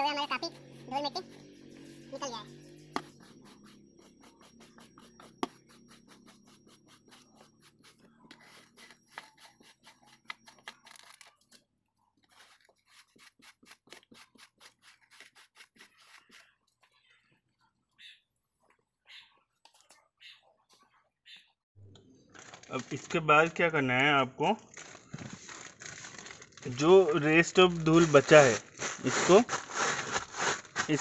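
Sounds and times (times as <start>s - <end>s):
hand brush scrubbing carpet: 2.9s - 10.4s, 12.3s - 16.4s, 27.7s - 31.0s.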